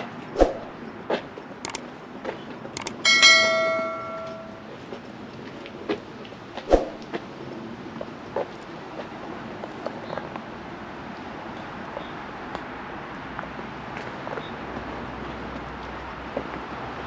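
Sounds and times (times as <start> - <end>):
bell ringing: 2.8 - 4.6
sharp knocks and clicks: 2.8 - 4.6.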